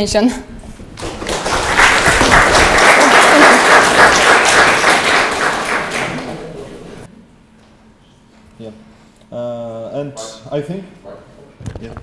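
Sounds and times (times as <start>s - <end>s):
audience applauding: 1.0s - 7.1s.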